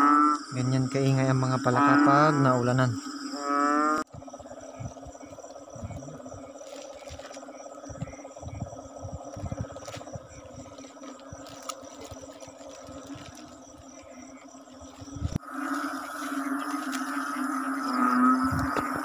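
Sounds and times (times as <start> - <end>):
frogs croaking in chorus: 0.0 - 19.0
high insect trills: 0.0 - 19.0
low handling thumps: 7.9 - 11.4.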